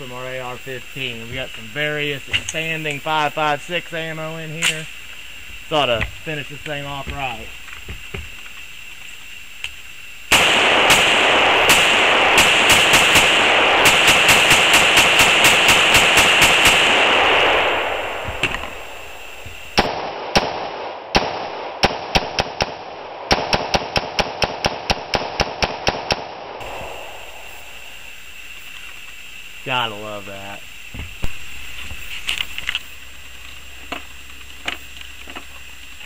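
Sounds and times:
rifle firing rapid shots: 10.3s - 19.0s, 19.8s - 26.7s.

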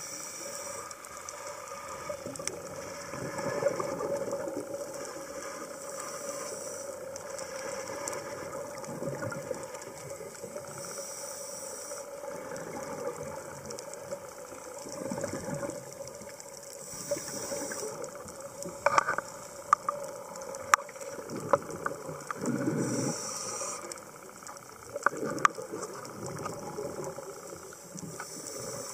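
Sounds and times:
underwater hum: 0.0s - 28.9s
diver breathing through regulator: 5.2s - 8.2s, 10.7s - 12.3s, 16.8s - 18.1s, 22.4s - 24.3s, 28.2s - 28.9s.

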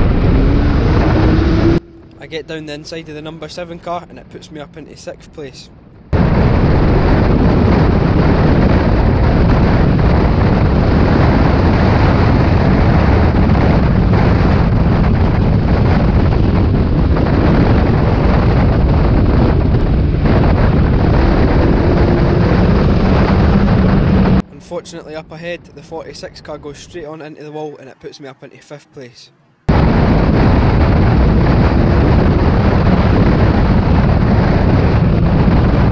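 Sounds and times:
racing car engine: 0.0s - 3.4s
wind buffeting microphone: 0.0s - 27.4s, 29.6s - 35.9s.

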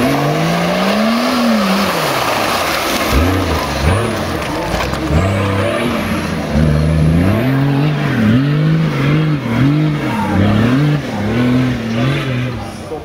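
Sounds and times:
engine revving under load: 0.0s - 13.0s
wheels spinning on dirt: 0.0s - 13.0s.

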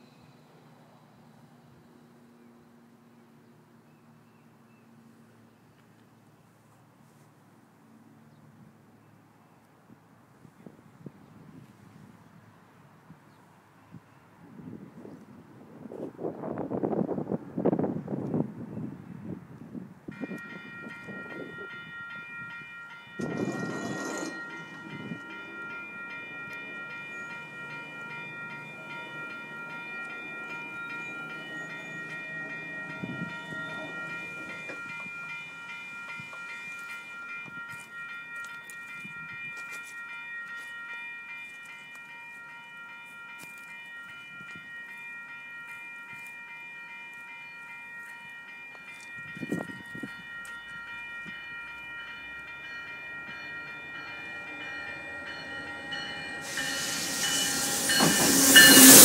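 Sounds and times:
crossing warning bell ringing: 20.1s - 59.0s.

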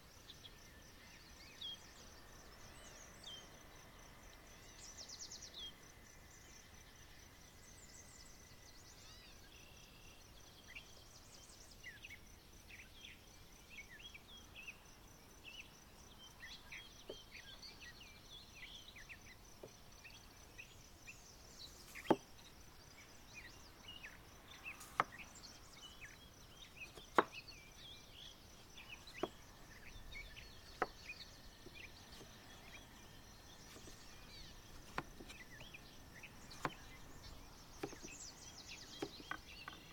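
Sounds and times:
birds chirping: 15.5s - 39.9s
knife cutting on wooden board: 21.8s - 22.2s, 33.6s - 35.7s, 36.4s - 38.2s.

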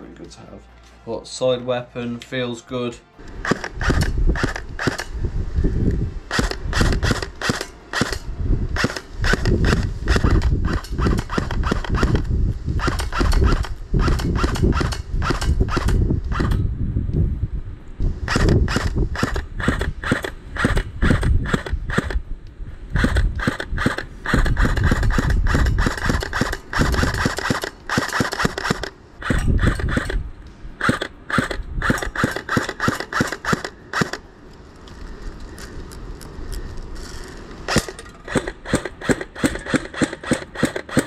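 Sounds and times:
airsoft gun firing: 3.4s - 5.1s, 6.3s - 12.2s, 23.0s - 30.2s, 30.8s - 34.2s, 37.7s - 41.0s.

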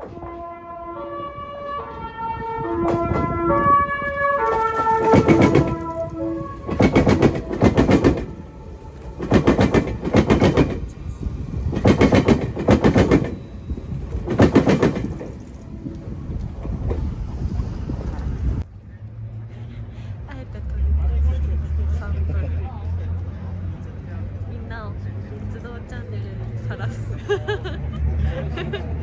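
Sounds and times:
train music horn melody: 0.0s - 10.2s
train wheels clanking over crossing: 4.5s - 5.9s, 6.6s - 8.4s, 9.0s - 11.0s, 11.6s - 15.8s.

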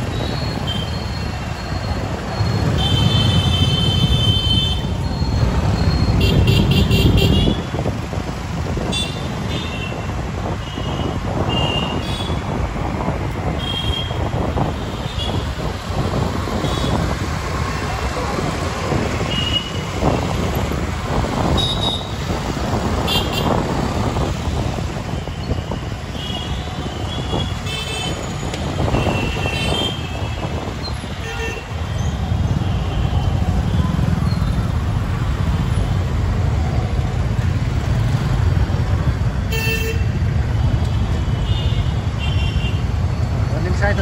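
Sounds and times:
dense traffic rumble: 0.0s - 44.0s.

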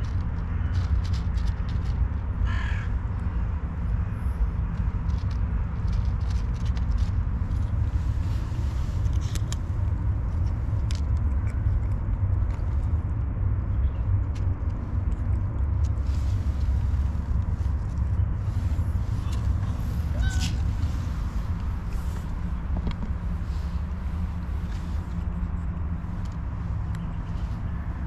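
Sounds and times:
cat crunching dry kibble: 0.0s - 2.6s, 4.6s - 19.7s
low rumble: 0.0s - 28.0s.

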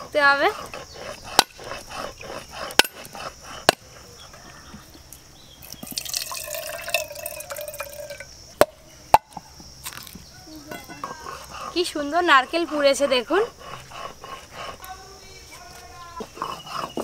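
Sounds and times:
water trickling into a mug: 5.6s - 8.3s.

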